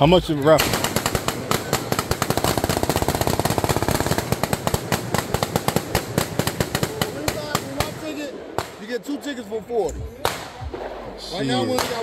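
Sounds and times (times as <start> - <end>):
rapid gunshots: 0.6 - 8.9, 11.7 - 12.0.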